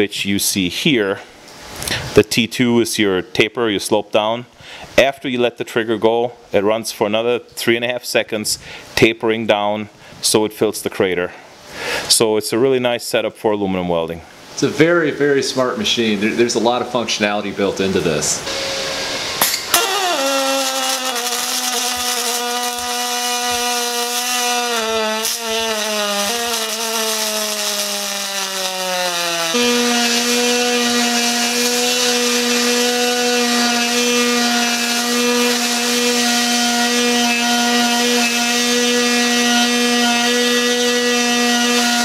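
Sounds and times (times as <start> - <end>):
welding arc buzzing: 18.5 - 42.0.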